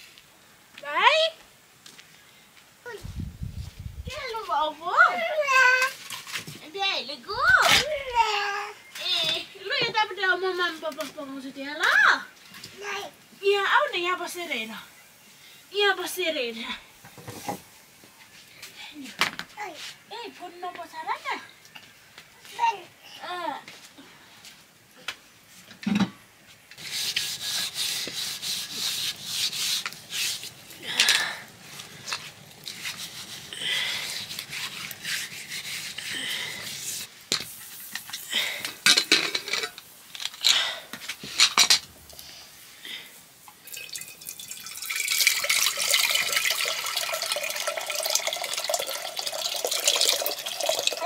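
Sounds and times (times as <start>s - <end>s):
rubbing and scraping: 26.8s - 30.8s, 31.6s - 38.0s
running water: 42.2s - 51.0s
water splashing and dripping: 43.5s - 51.0s.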